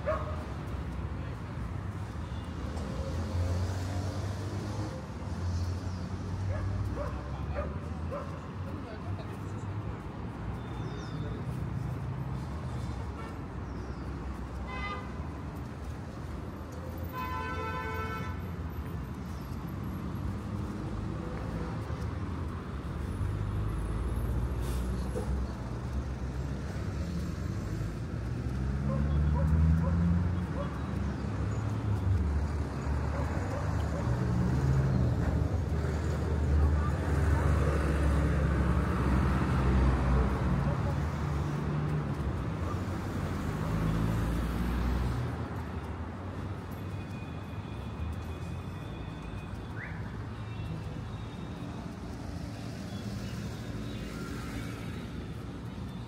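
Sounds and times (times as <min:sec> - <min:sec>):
road traffic rumble: 0:00.0 - 0:56.0
vehicle passing: 0:19.8 - 0:46.9.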